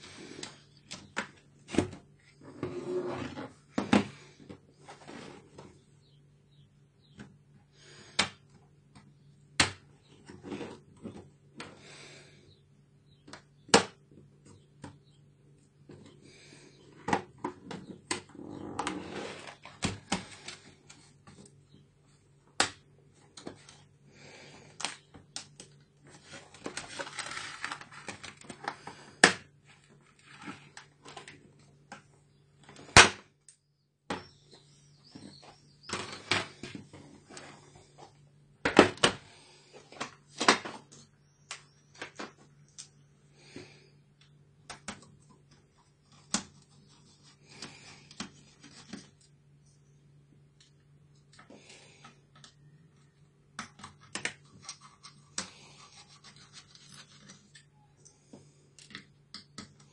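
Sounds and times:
plastic sliding and scraping: 0:00.0 - 0:05.8, 0:10.1 - 0:11.3, 0:15.9 - 0:21.5, 0:26.0 - 0:31.7.

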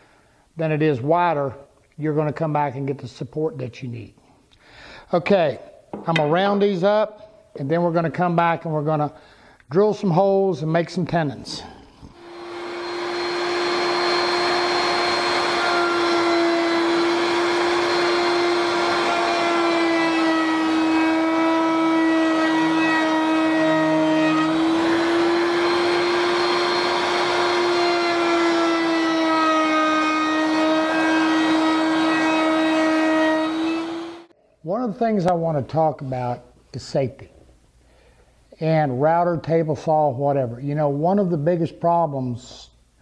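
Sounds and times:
router whining while cutting wood: 0:12.1 - 0:34.3.

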